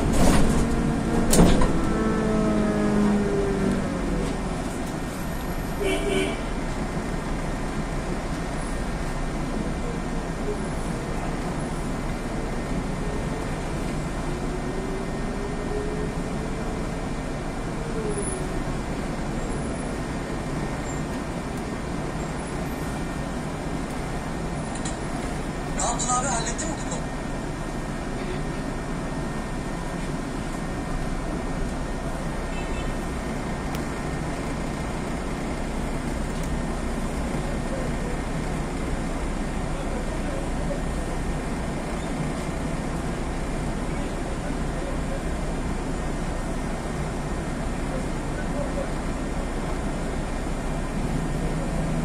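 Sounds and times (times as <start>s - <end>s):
bus engine and road noise: 0.0s - 52.0s.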